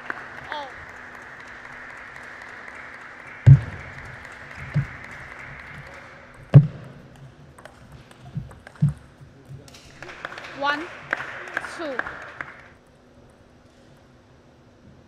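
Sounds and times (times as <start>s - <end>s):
background hum: 0.0s - 15.0s
ping pong ball clicking: 3.5s - 10.9s.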